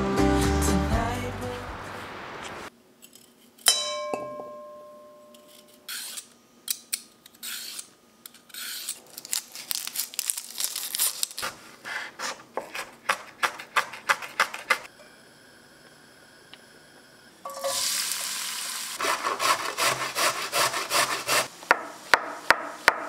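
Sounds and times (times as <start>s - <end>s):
sharp ringing clink: 3.7s - 5.8s
onion skins crackling and tearing: 7.2s - 14.8s.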